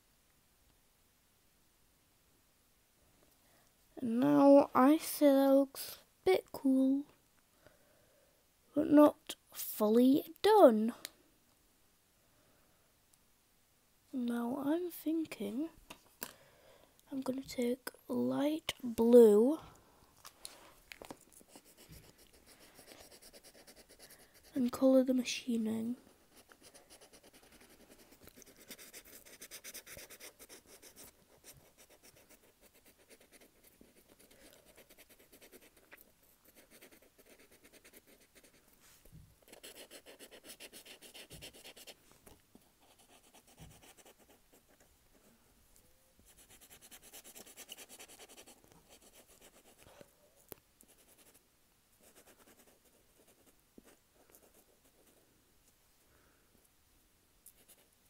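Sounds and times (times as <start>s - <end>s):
marker scratching on paper: 21.5s - 24.5s, 26.3s - 38.6s, 39.4s - 42.0s, 42.8s - 44.8s, 46.3s - 49.8s.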